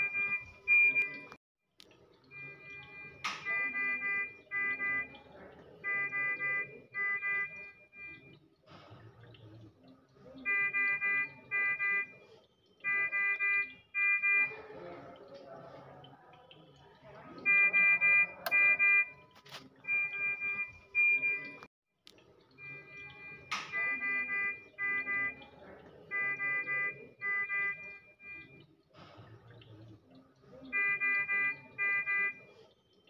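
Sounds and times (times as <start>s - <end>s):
medical alarm beeping: 0.0s - 1.4s, 2.3s - 8.4s, 10.4s - 12.2s, 12.8s - 15.1s, 17.2s - 21.7s, 22.6s - 28.7s, 30.7s - 32.6s.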